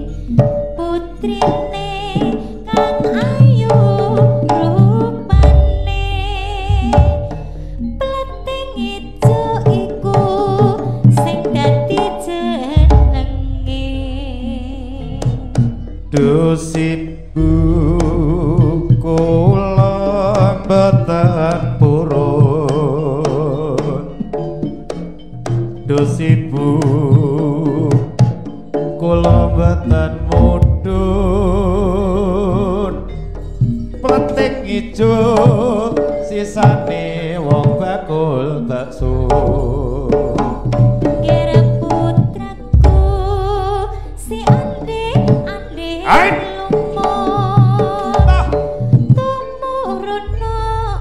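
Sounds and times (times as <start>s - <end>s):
drum strokes: 0.0s - 24.1s, 24.7s - 38.0s, 39.0s - 49.4s
pitched percussion: 0.0s - 51.0s
wavering melody line: 0.0s - 51.0s
deep low note: 12.8s - 15.5s, 48.2s - 48.7s.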